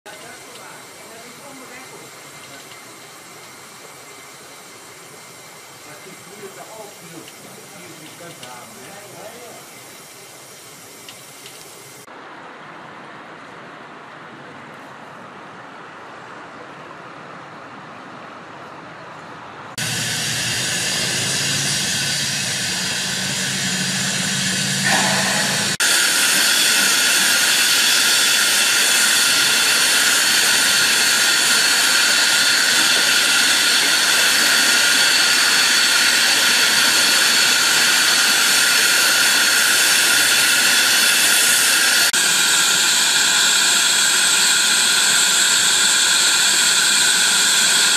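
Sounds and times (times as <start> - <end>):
steam hissing: 0.1 - 12.1, 19.8 - 47.9
low hum: 19.8 - 32.5.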